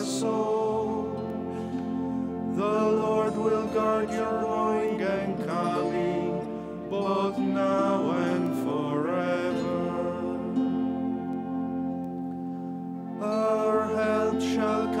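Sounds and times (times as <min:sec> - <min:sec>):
person chanting: 0:00.0 - 0:01.5, 0:02.6 - 0:11.1, 0:13.2 - 0:15.0
held accompanying chords: 0:00.0 - 0:15.0.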